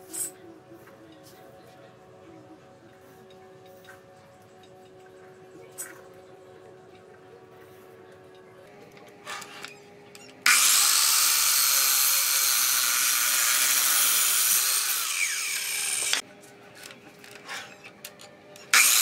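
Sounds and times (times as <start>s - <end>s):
miter saw cutting wood: 10.4s - 16.2s, 18.7s - 19.0s.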